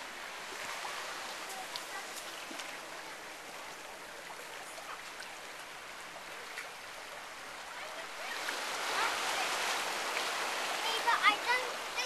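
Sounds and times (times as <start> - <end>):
water washing over sand: 0.0 - 12.0.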